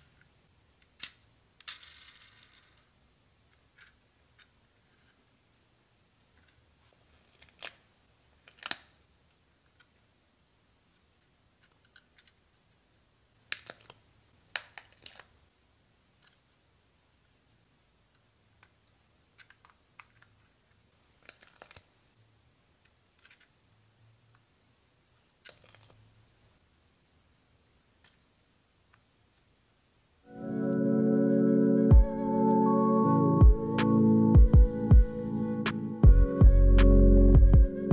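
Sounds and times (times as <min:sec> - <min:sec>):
plastic pieces clicking: 0:11.6 - 0:12.4, 0:13.4 - 0:15.3, 0:18.6 - 0:20.5, 0:21.2 - 0:21.9, 0:22.8 - 0:23.5, 0:25.4 - 0:26.0.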